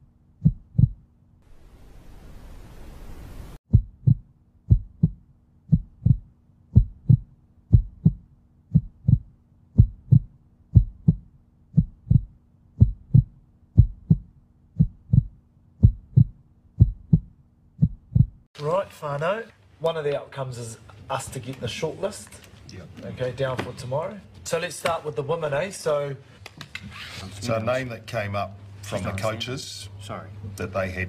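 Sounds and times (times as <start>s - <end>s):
heartbeat thumps: 0.4s - 1.0s, 3.7s - 18.5s.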